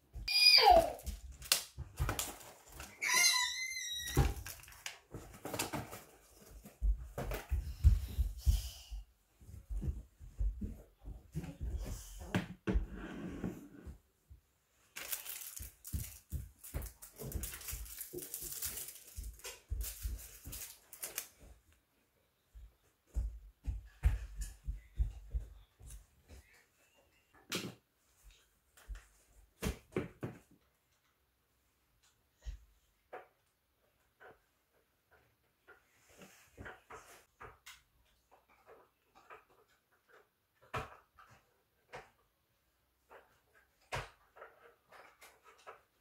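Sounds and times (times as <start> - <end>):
plastic packaging rustling: 0.3 - 3.3, 4.1 - 6.8, 14.9 - 21.4.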